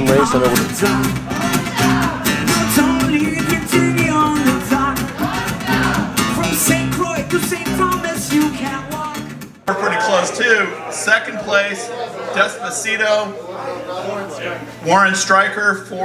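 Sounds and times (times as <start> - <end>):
man singing: 0.0 - 9.4
strummed acoustic guitar: 0.0 - 9.7.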